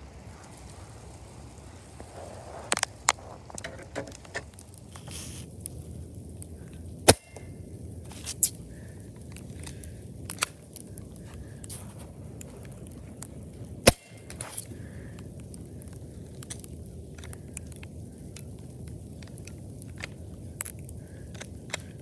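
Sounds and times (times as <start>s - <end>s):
airsoft pistol shots: 13.9s - 14.2s.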